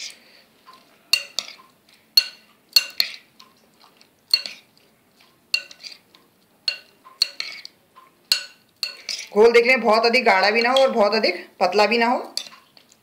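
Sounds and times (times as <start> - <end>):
stirring thick batter: 0.0 - 11.1, 12.3 - 13.0
spoon clinking against glass bowl: 0.7 - 3.2, 4.3 - 4.7, 5.5 - 6.0, 6.6 - 9.3.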